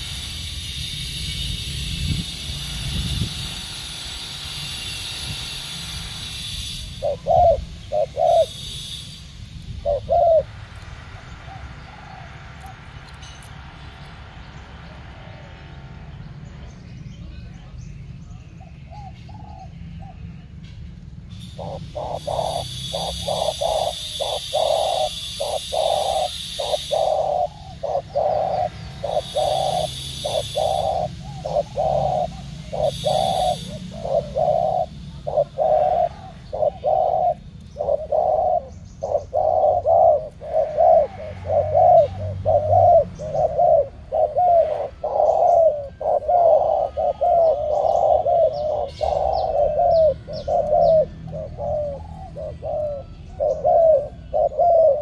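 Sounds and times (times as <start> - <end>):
doves cooing: 6.2 - 13.7, 21.4 - 55.0.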